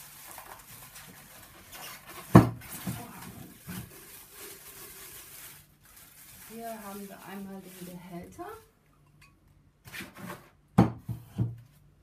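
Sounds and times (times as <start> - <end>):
plastic wrapping rustling: 0.0 - 8.8.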